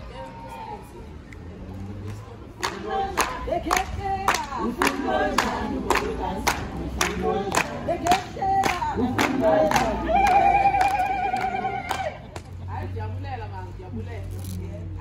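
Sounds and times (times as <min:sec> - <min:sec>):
women singing: 0:02.6 - 0:12.4
clapping in time: 0:02.6 - 0:12.6.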